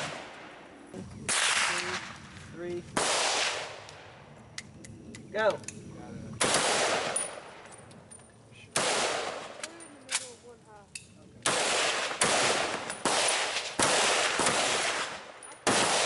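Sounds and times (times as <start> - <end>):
loud rifle shots: 1.3 - 2.3, 2.9 - 4.2, 6.4 - 7.6, 8.7 - 9.6, 11.4 - 16.0.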